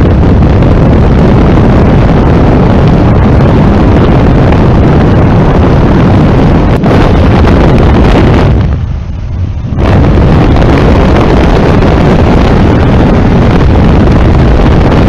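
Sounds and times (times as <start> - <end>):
biplane engine and propeller: 0.0 - 15.0
wind buffeting microphone: 0.0 - 15.0.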